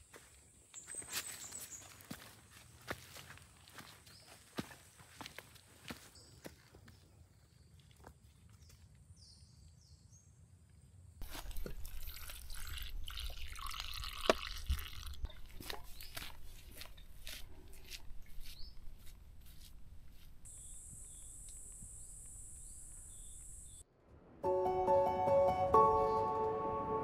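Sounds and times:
liquid pouring and splashing: 11.2 - 16.4
faint bird chirps: 20.5 - 23.8.

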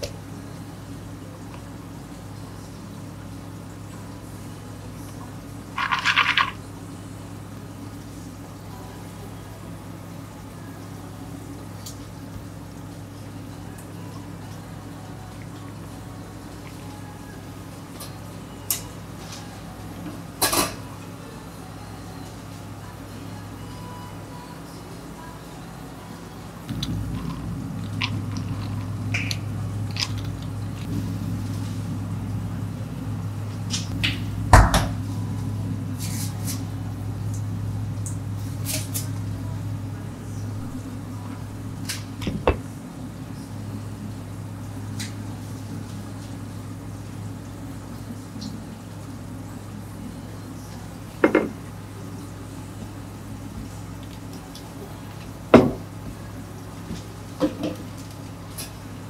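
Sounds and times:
steady low hum: 0.0 - 59.0
objects knocking on a counter: 51.2 - 51.6, 55.6 - 55.8.

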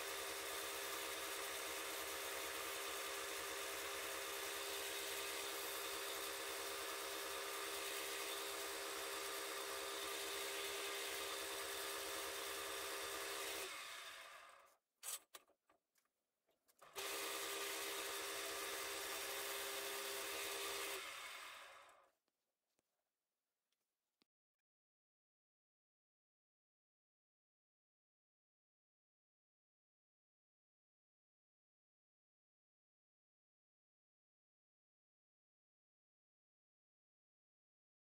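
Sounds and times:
wood lathe humming: 0.0 - 14.5, 17.0 - 21.9.

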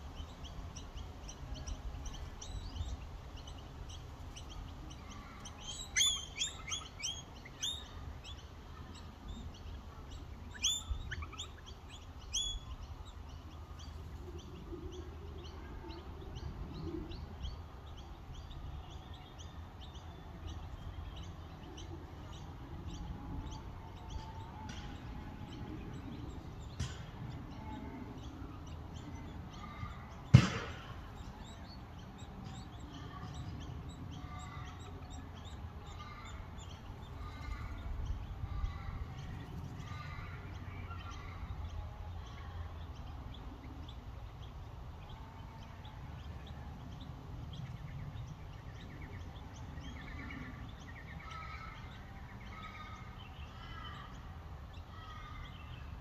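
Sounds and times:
faint high chirping: 4.3 - 30.1
loud thump: 30.3 - 31.0.

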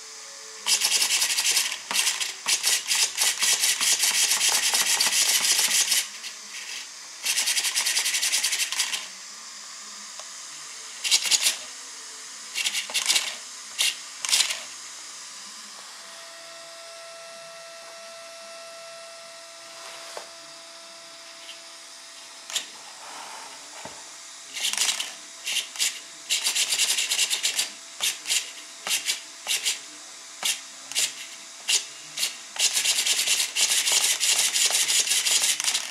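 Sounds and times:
servo buzzing: 12.5 - 14.8.

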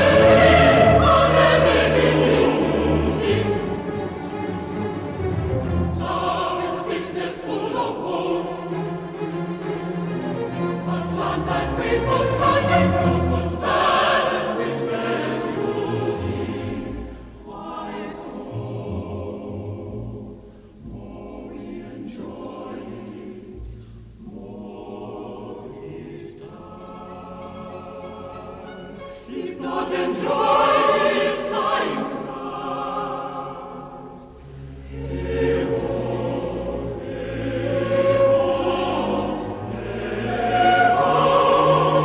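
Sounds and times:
mixed choir singing: 0.0 - 42.0
string orchestra: 0.0 - 42.0
singers breathing: 20.4 - 20.8, 29.0 - 29.4, 34.4 - 34.9.

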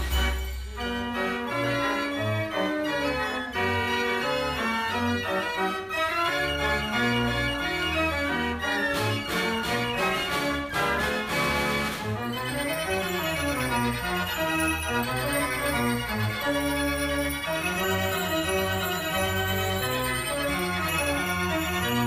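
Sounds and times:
fair organ dance tune: 0.0 - 22.0.

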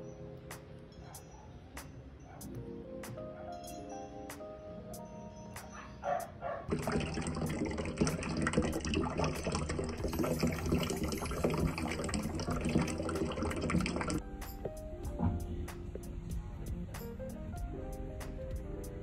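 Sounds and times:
water boiling hard: 6.7 - 14.2.

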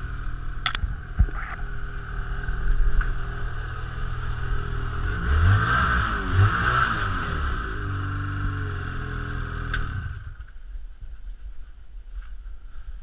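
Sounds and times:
snowmobile engine idling: 0.0 - 5.3
sharp click: 0.6 - 1.6.

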